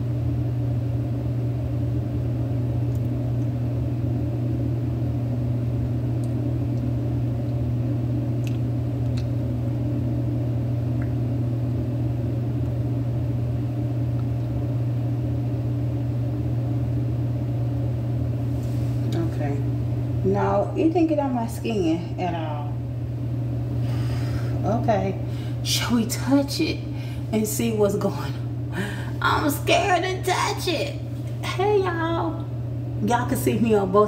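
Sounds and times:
low mechanical hum: 0.0s - 34.0s.

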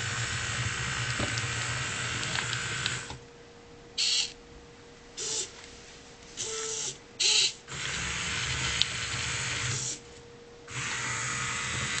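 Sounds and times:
small electric motors whirring: 0.0s - 3.2s, 6.4s - 10.0s, 10.7s - 12.0s.

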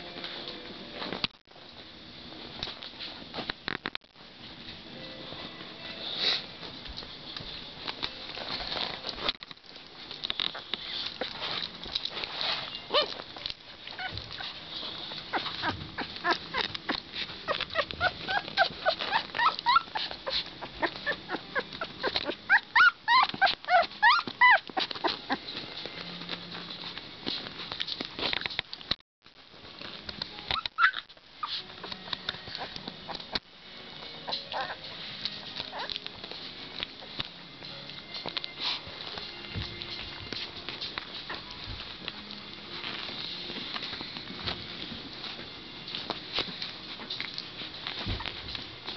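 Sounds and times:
rustling and scratching on blankets: 2.0s - 28.8s, 29.5s - 48.9s
puppies squeaking and whimpering: 10.5s - 11.6s, 12.4s - 25.7s, 30.5s - 33.4s, 34.2s - 36.3s, 47.1s - 48.9s.

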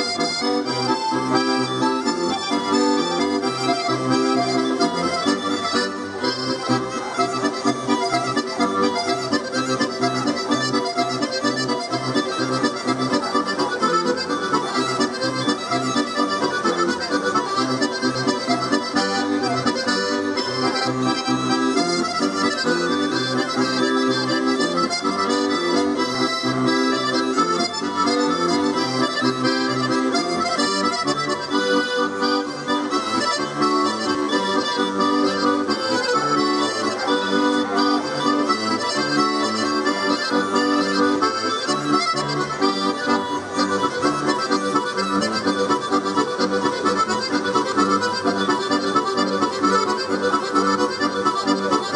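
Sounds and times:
accordion dance tune: 0.0s - 51.9s.

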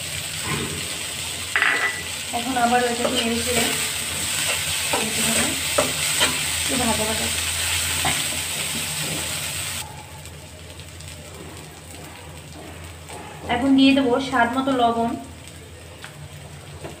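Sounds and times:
vegetables sizzling in hot oil: 0.0s - 17.0s
metal spatula scraping wok: 2.9s - 9.4s.

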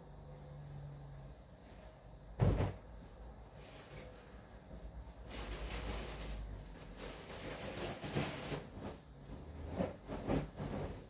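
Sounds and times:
fabric curtain rustling: 3.4s - 11.0s.

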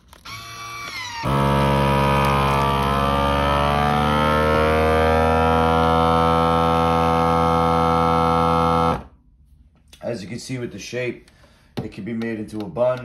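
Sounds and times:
vacuum sealer pump whining: 0.0s - 9.1s.

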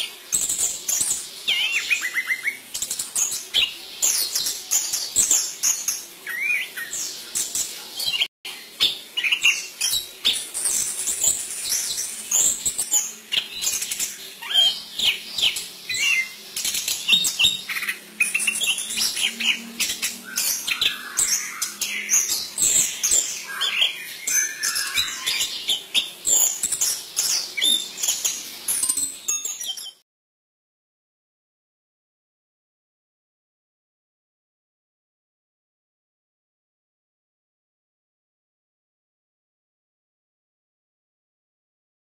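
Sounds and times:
bird singing rapid chirps: 0.3s - 30.0s.

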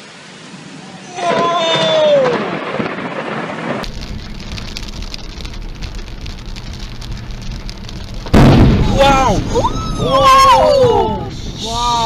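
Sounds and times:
rain on car windshield: 1.1s - 12.0s
car rumbling on wet road: 2.2s - 10.1s.

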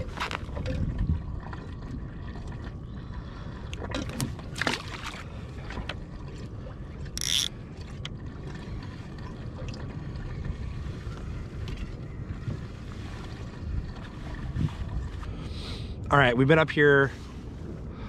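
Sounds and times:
wind and water rumble: 0.0s - 18.0s
fishing reel clicks: 7.2s - 7.5s.

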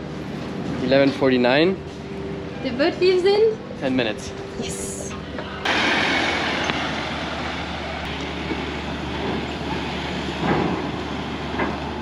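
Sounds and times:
engines humming: 0.0s - 12.0s
vehicle rumbling up ramp: 5.1s - 12.0s.

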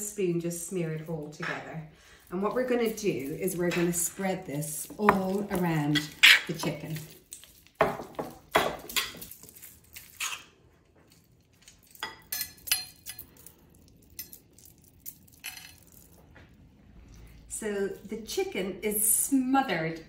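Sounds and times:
spoon scraping and clinking dish: 5.1s - 7.1s.

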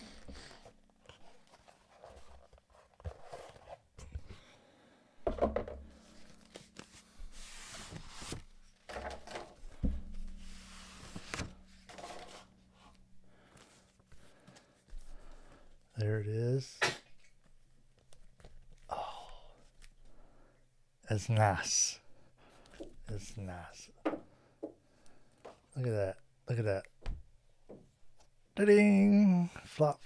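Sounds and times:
book knocking on desk: 5.2s - 5.8s
paper wrapping rustling: 6.0s - 15.0s.

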